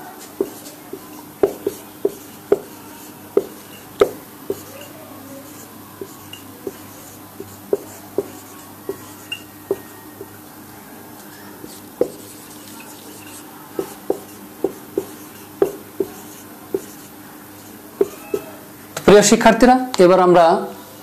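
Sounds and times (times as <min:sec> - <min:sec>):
marker tapping on whiteboard: 0:00.4 - 0:04.9, 0:05.5 - 0:10.3, 0:11.6 - 0:17.1, 0:18.0 - 0:18.5.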